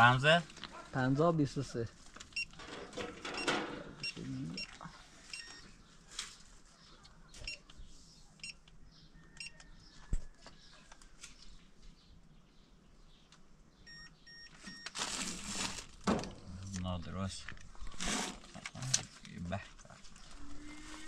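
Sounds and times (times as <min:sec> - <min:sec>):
keypad beeps: 0:03.4 - 0:04.7, 0:05.3 - 0:05.6, 0:07.4 - 0:07.7, 0:08.4 - 0:08.6, 0:09.4 - 0:09.6, 0:13.8 - 0:15.0.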